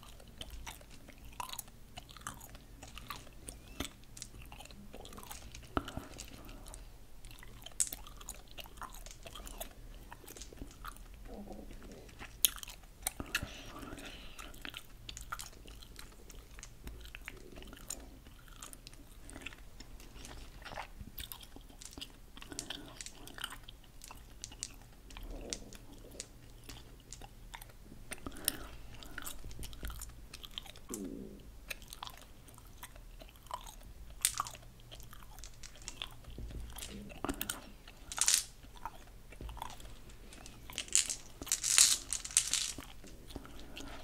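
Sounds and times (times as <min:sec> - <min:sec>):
gum pellets clicking in palm: 0:00.0 - 0:11.2, 0:21.2 - 0:31.0, 0:31.7 - 0:44.0.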